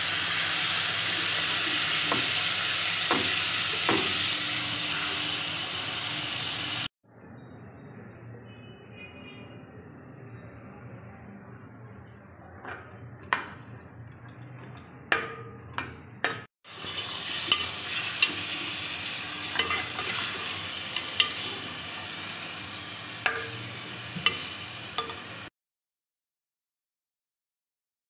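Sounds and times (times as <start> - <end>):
chicken sizzling in hot oil: 0.0 - 6.9, 16.6 - 25.5
spoon clanking against pot: 12.6 - 16.5, 17.3 - 21.7, 23.2 - 25.4.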